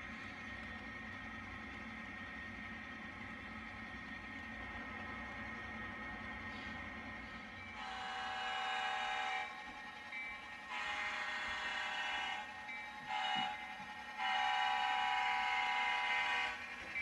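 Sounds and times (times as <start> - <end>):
model locomotive horn blasts: 7.7 - 9.7, 10.6 - 17.0.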